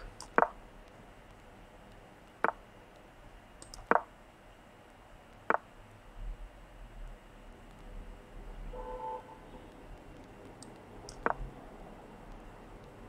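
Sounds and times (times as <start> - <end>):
sharp clicks: 0.0 - 4.1, 4.9 - 5.7, 9.7 - 11.6.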